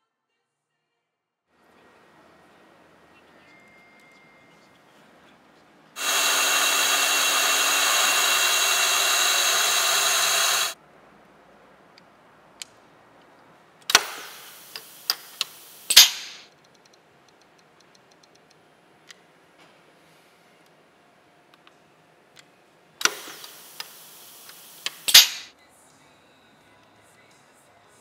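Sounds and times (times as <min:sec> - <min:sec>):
workshop machine hissing and whining: 0:06.0 - 0:10.8, 0:13.9 - 0:16.4, 0:23.0 - 0:25.5
metal parts clicking: 0:24.9 - 0:25.5.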